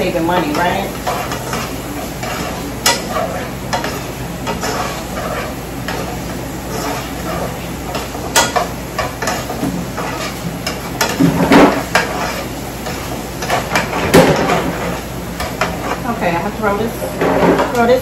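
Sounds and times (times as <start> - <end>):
utensil scraping pan: 0.0 - 16.1
onions sizzling in a skillet: 0.0 - 18.0.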